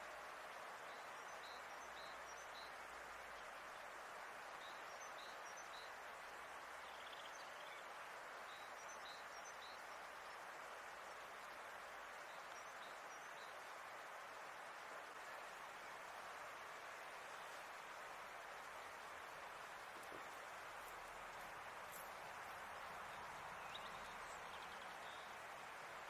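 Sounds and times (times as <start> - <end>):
outdoor hiss: 0.0 - 26.0
small birds chirping: 19.6 - 25.5.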